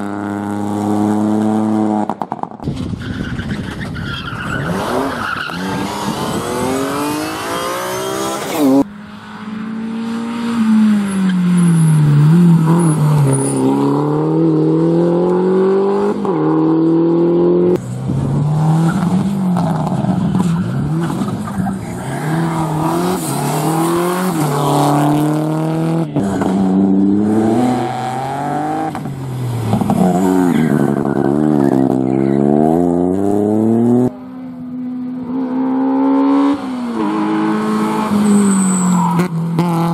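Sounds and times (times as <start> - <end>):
rally car engines at full throttle: 0.0 - 39.9.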